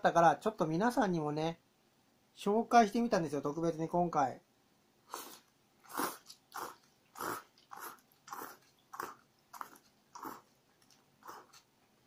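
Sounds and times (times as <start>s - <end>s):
person slurping noodles: 5.1s - 10.5s, 11.2s - 11.6s.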